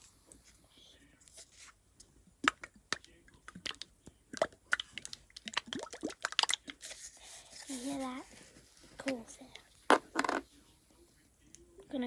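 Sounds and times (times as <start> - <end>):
plastic bottle squirting liquid: 3.5 - 6.9.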